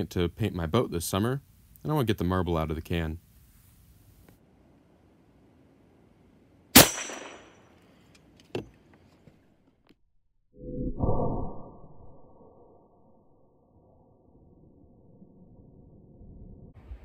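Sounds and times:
air gun sharp crack: 6.8s - 7.8s
deep drawn-out rumble: 13.9s - 17.0s.

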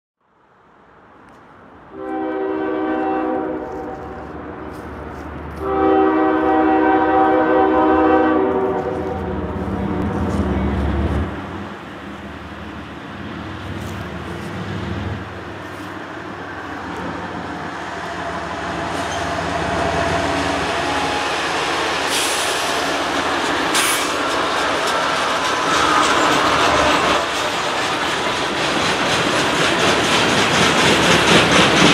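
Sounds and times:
diesel engines and wheels rumbling: 0.3s - 31.9s
train horn blasts: 1.9s - 4.4s, 5.5s - 10.8s, 17.7s - 23.0s.

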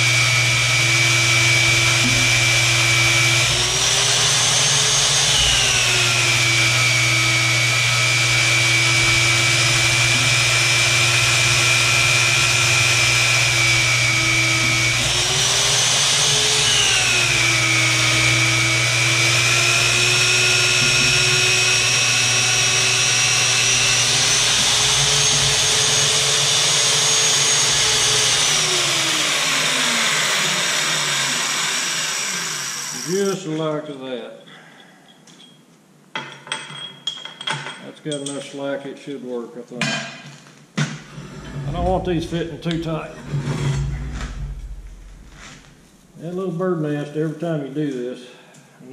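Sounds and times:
magnetic drill whining: 0.0s - 33.4s, 41.1s - 45.7s.

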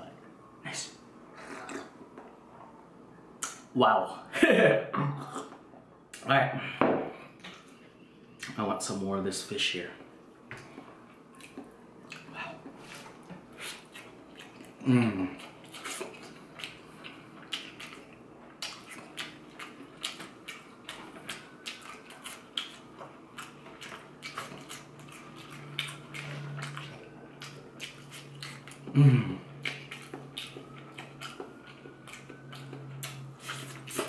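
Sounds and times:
person chewing crispy food: 10.6s - 34.0s
person humming mmm: 14.8s - 15.5s, 28.8s - 29.6s.

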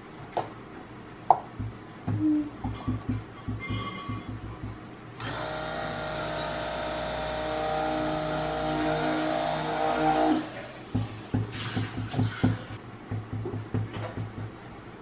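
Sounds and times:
stick blender whining: 5.2s - 10.7s.

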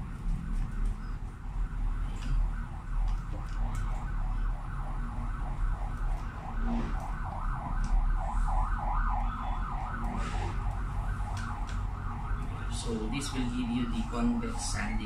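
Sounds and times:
low hum: 0.0s - 14.4s
warbling siren-like tone: 0.0s - 15.0s.

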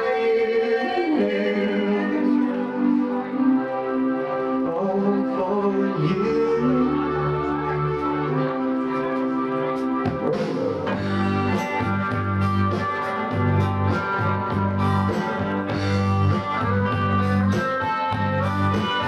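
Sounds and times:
bass guitar: 0.0s - 19.0s
electric guitar: 0.0s - 19.0s
drums beat: 10.1s - 19.0s.

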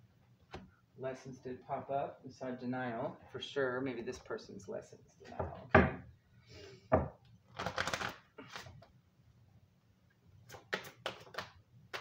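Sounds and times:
cards rustling: 7.5s - 8.9s.

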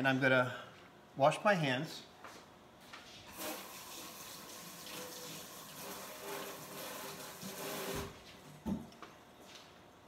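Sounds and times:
tap water running: 3.3s - 8.2s.

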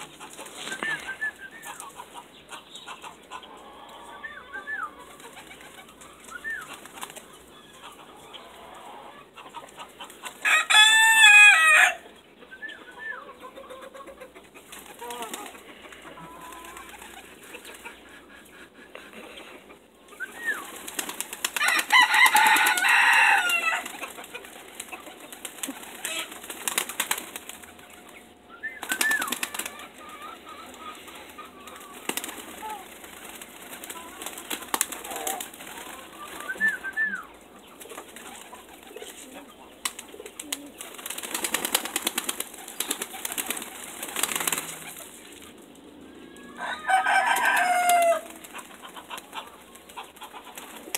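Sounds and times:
pigeon wings flapping: 5.1s - 7.3s, 16.4s - 17.4s, 20.3s - 28.1s, 28.8s - 29.9s, 31.6s - 37.1s, 39.8s - 45.5s, 47.3s - 50.9s.

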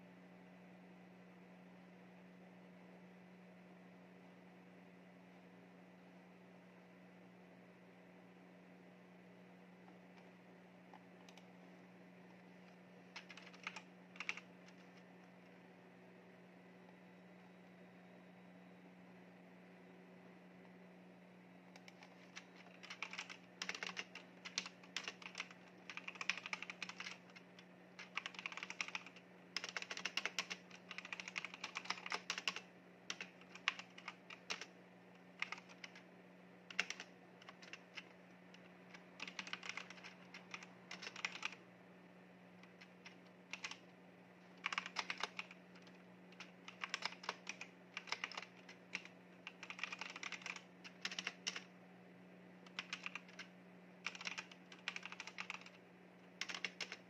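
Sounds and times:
faint low hum: 0.0s - 57.0s
mechanical keyboard typing: 11.2s - 11.5s, 13.1s - 15.0s, 21.8s - 34.7s, 35.4s - 36.0s, 36.7s - 41.6s, 42.6s - 43.8s, 44.6s - 51.7s, 52.6s - 55.8s, 56.4s - 57.0s.

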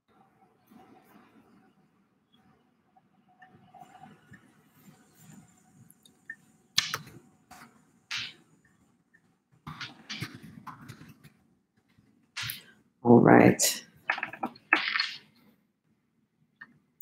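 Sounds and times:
clicks and taps: 6.8s - 7.2s, 14.1s - 15.2s.

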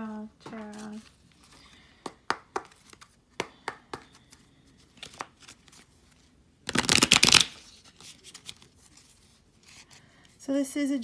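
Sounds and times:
cards riffling: 4.1s - 5.9s, 6.6s - 9.8s.

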